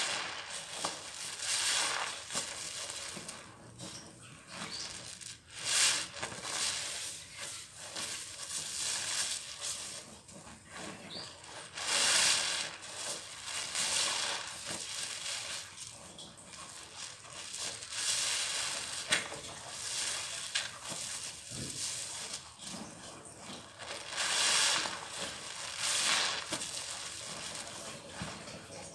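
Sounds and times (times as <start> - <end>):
sponges squelching in suds: 0.0 - 28.9.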